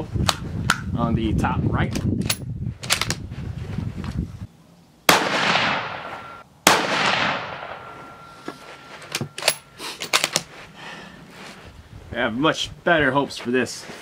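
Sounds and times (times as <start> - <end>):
rifle shots echoing: 5.1 - 8.3.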